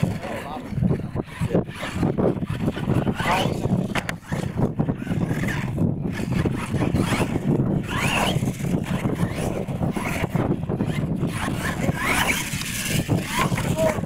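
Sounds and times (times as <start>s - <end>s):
rc truck motor whining: 0.0s - 14.0s.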